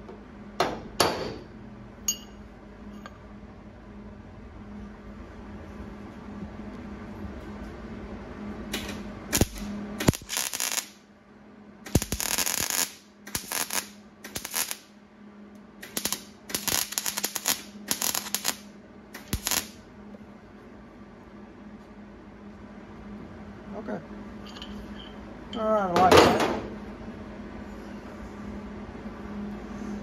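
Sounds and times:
welder crackling bursts: 0:08.7 - 0:11.0, 0:11.9 - 0:14.9, 0:15.8 - 0:19.8.

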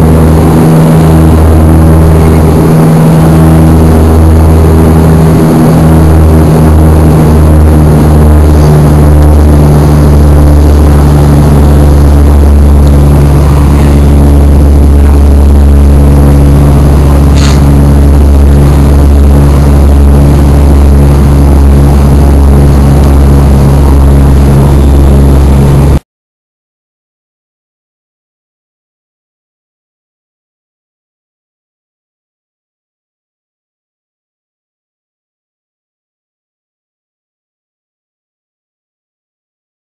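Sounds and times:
rushing noise: 0:00.0 - 0:26.0
turboprop engine drone: 0:00.0 - 0:26.0.

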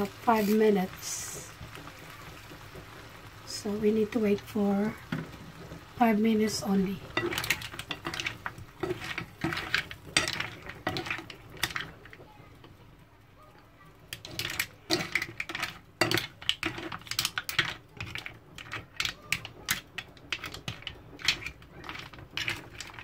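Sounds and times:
mussel shells clacking: 0:07.0 - 0:12.2, 0:14.1 - 0:23.0.

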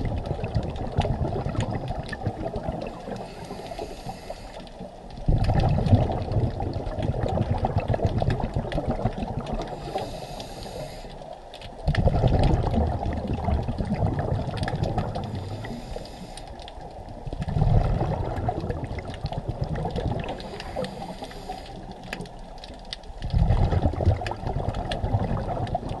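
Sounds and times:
exhaled bubbles underwater: 0:00.0 - 0:26.0
regulator hiss: 0:03.1 - 0:04.7, 0:09.8 - 0:11.3, 0:15.3 - 0:16.6, 0:20.4 - 0:22.0.

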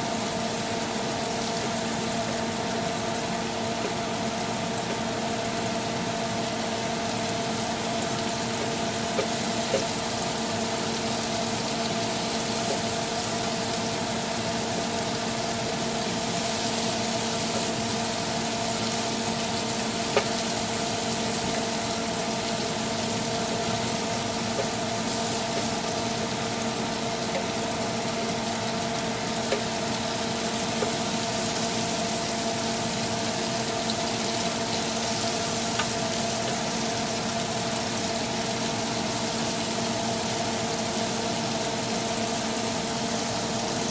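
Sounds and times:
steady hum: 0:00.0 - 0:38.9
shrimp sizzling in a pan: 0:00.0 - 0:43.9
spatula knocking against pan: 0:09.1 - 0:09.9.

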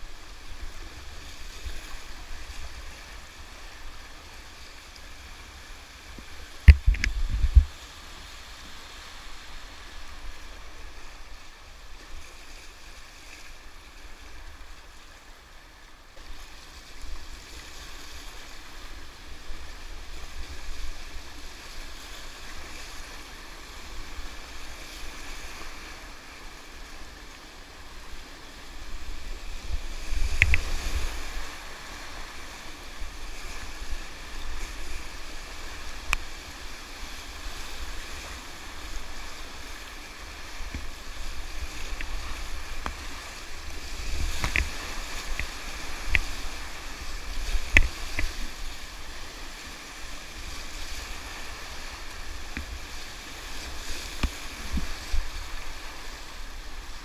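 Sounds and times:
wind rumble on microphone: 0:00.0 - 0:11.5, 0:28.0 - 0:57.0
river water rushing: 0:00.0 - 0:57.0
faint click: 0:06.2 - 0:07.3, 0:30.4 - 0:30.7.

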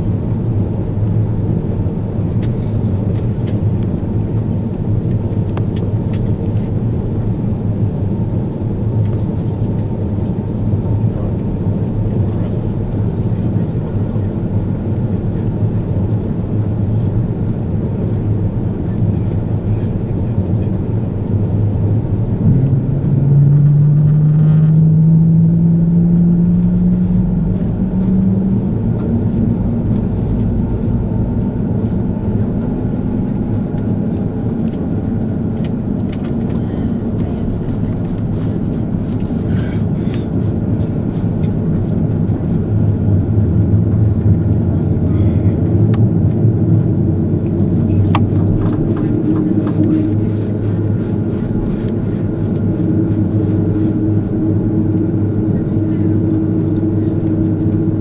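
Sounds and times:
aircraft cabin engine rumble: 0:00.0 - 0:58.0.

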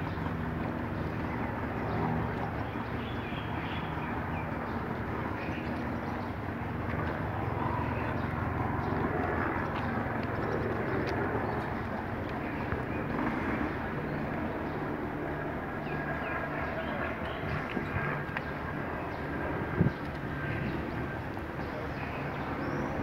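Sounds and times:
birds chirping: 0:00.0 - 0:23.0
footsteps on asphalt: 0:08.2 - 0:13.6, 0:17.2 - 0:19.3.

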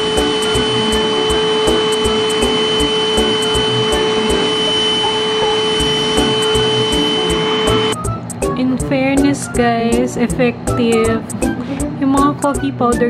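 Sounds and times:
handheld vacuum motor whine: 0:00.0 - 0:08.0.

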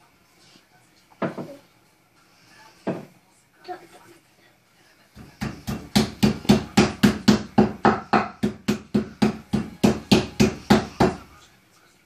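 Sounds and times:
meat mallet pounding on wooden board: 0:05.2 - 0:11.2.

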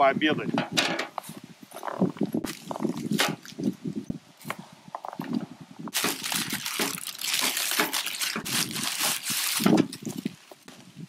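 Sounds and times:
paper wrapping crinkling: 0:05.9 - 0:10.6.

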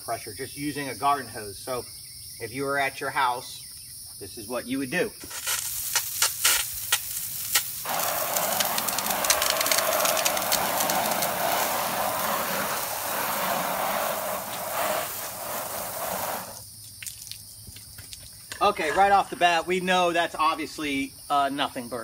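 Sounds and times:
hose water spraying on siding: 0:05.2 - 0:17.4.

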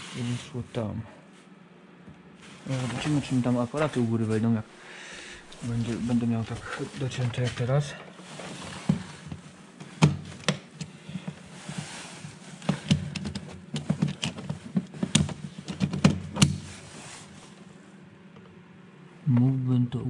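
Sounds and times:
wires and plastic parts clicking: 0:12.6 - 0:16.6.

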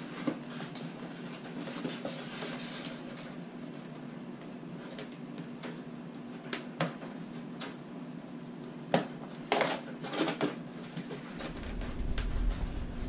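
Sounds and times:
steady low hum: 0:10.7 - 0:13.0.

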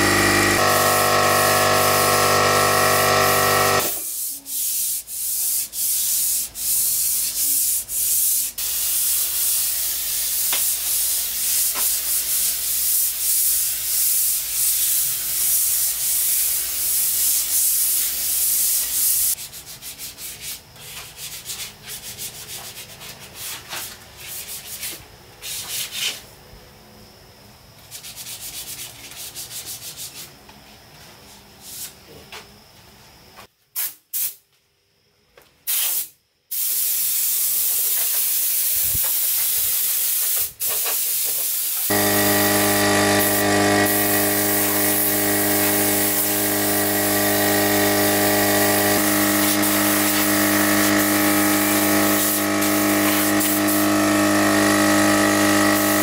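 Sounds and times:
air compressor motor running: 0:00.0 - 0:04.1, 0:41.8 - 0:56.0
sandpaper rubbing on wood: 0:03.8 - 0:08.6.

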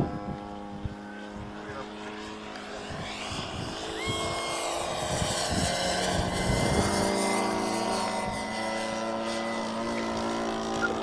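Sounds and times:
model plane engine and propeller: 0:00.0 - 0:11.0.

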